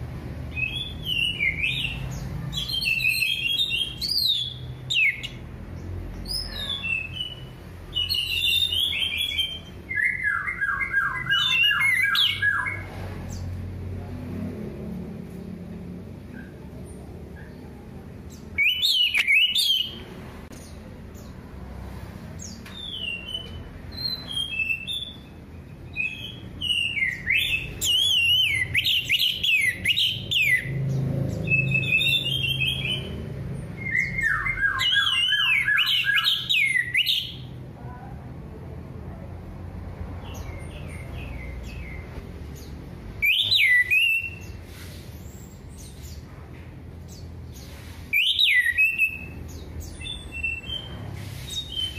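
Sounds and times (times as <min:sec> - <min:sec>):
thrush whistling song: 0:06.3 - 0:12.8, 0:18.6 - 0:20.0, 0:22.7 - 0:30.8, 0:31.4 - 0:33.1, 0:33.8 - 0:37.5, 0:43.2 - 0:44.7, 0:47.6 - 0:51.9.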